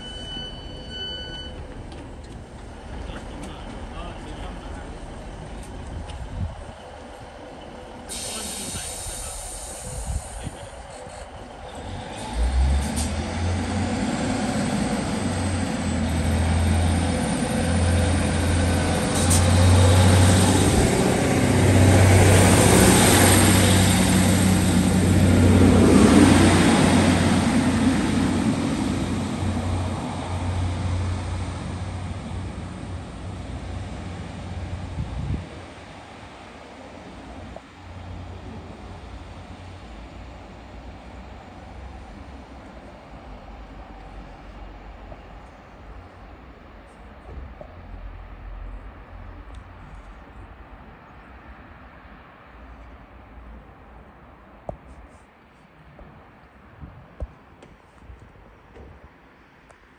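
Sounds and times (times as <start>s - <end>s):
train diesel engines throbbing: 0.0s - 47.2s.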